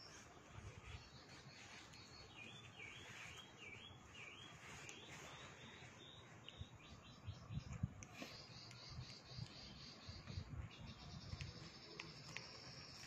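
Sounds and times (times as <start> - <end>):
faint bird chirping: 0.0 - 13.0.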